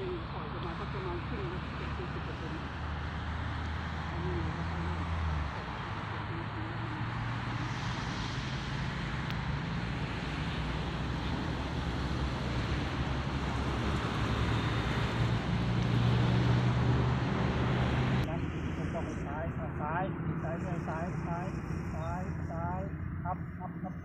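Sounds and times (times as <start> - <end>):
model airplane droning overhead: 0.0 - 24.0.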